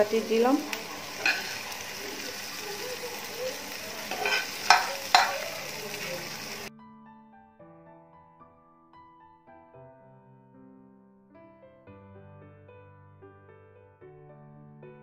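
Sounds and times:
food sizzling in a pan: 0.0 - 6.7
soft piano music: 0.0 - 15.0
spatula stirring and scraping: 0.8 - 2.6, 4.0 - 6.6
spatula knocking against pan: 4.2 - 5.5.

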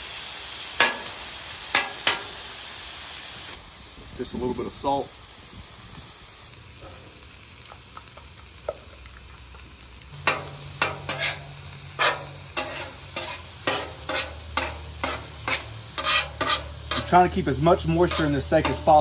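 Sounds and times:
steak sizzling on a griddle: 0.0 - 19.0
metal spatula scraping steel: 10.2 - 19.0.

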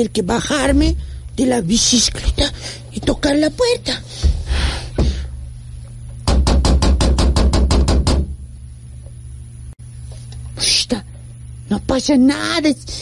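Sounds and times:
rapid knocking on door: 4.2 - 5.2, 6.2 - 8.4.

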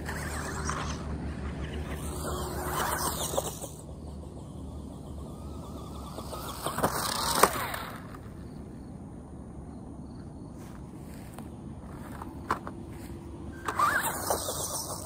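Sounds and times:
toy car electric motor whining: 0.0 - 8.5, 13.5 - 15.0
toy car knocking as it tumbles: 1.9 - 8.3, 12.0 - 12.8, 13.6 - 15.0.

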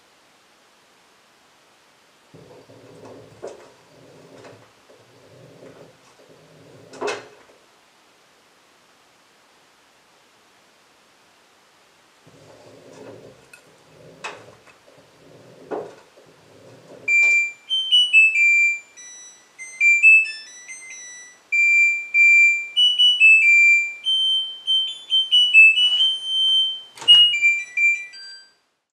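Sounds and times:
washing machine drum tumbling: 2.4 - 7.5
electronic beep melody: 17.1 - 28.5.

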